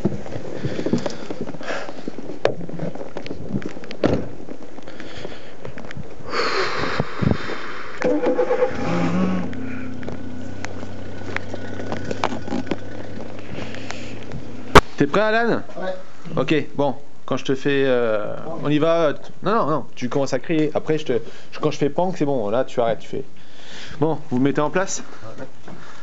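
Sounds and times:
car engine starting and humming: 8.0 - 14.8.

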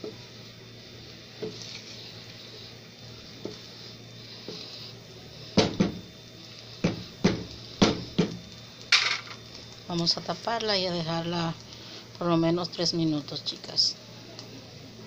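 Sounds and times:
spatula stirring rice in pot: 0.0 - 7.6.

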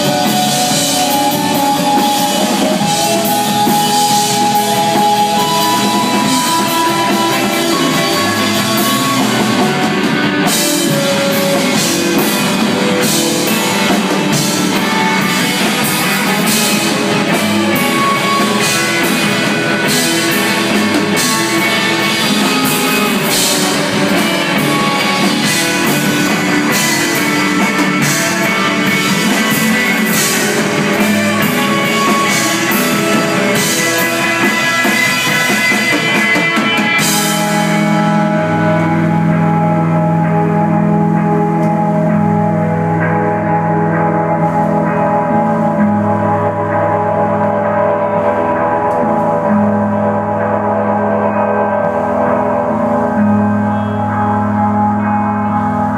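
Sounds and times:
drum kit with cymbals: 0.0 - 42.5
electric guitars and bass: 0.0 - 55.9.

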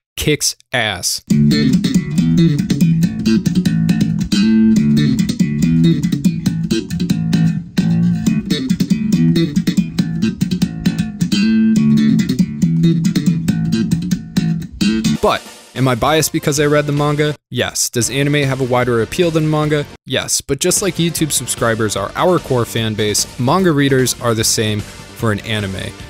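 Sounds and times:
fingerstyle electric bass guitar: 1.3 - 15.4.

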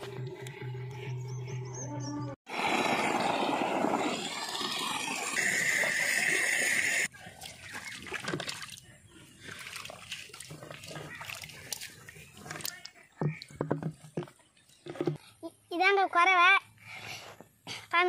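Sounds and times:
water rushing along channel: 2.5 - 13.9
water splashing and trickling: 2.5 - 15.2.

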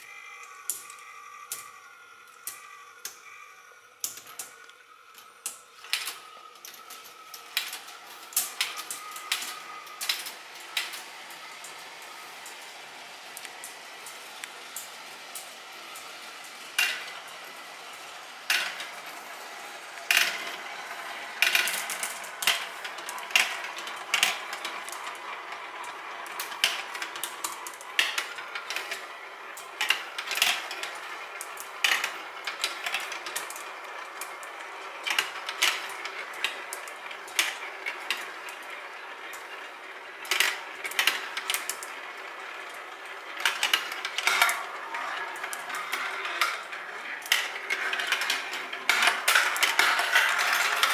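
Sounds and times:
marbles rolling hum: 0.0 - 50.9
marbles clacking on plastic track: 5.4 - 12.1, 16.8 - 17.4, 18.5 - 19.1, 20.0 - 50.9.

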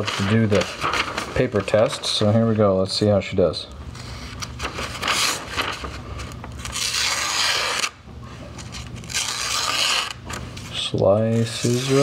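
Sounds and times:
knife slicing newspaper: 11.4 - 12.0.

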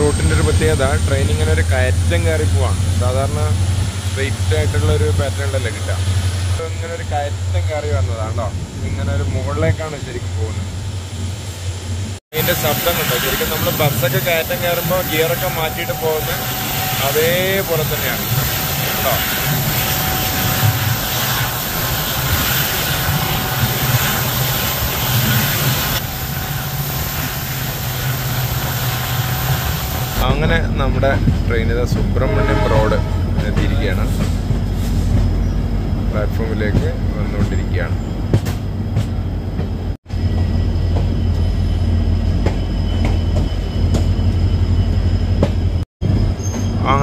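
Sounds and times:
locomotive rumbling: 0.0 - 47.0
train coaches running noise: 0.0 - 47.0
high hiss: 12.4 - 30.2.

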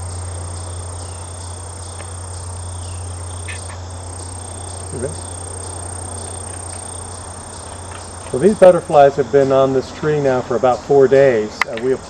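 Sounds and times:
steady high trill: 0.0 - 9.5
constant low hum: 0.0 - 12.0
insects chirping: 0.0 - 12.0
faint high ticks: 1.8 - 2.2, 3.4 - 4.3, 6.2 - 8.5.

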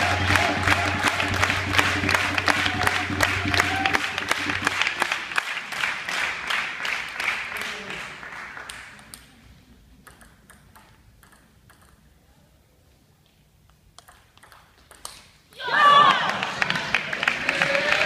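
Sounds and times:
low music: 0.0 - 8.2
audience applauding: 0.0 - 9.1, 15.8 - 18.0.

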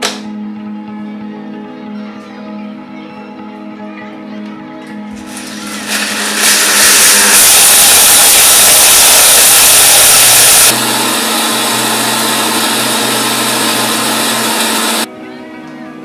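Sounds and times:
mixer grinder motor whirring: 5.2 - 15.1.

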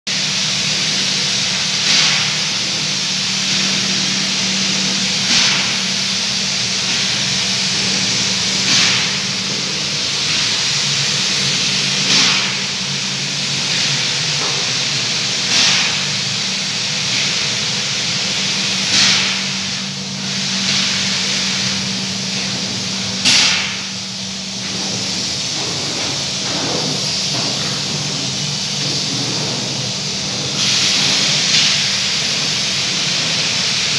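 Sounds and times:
low machine hum: 0.1 - 33.9
compressed air rushing: 18.9 - 33.9.

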